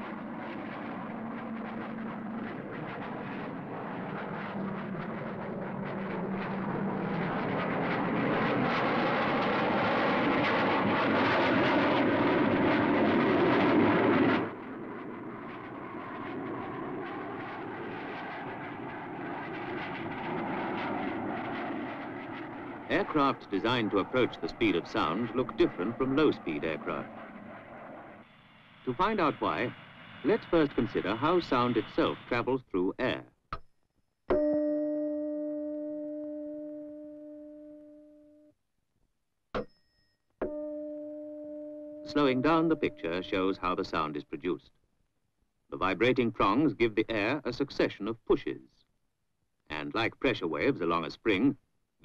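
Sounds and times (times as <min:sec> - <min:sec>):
jet engine in flight: 0:00.0 - 0:33.2, 0:42.1 - 0:44.6, 0:45.8 - 0:48.6, 0:49.7 - 0:51.5
tuning fork ringing: 0:34.3 - 0:38.5, 0:39.6 - 0:43.2
sharp knock with high ring: 0:39.6 - 0:40.6.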